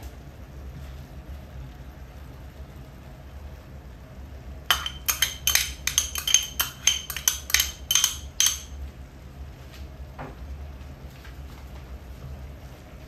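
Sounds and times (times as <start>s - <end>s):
spoon clinking against bowl: 4.7s - 8.8s.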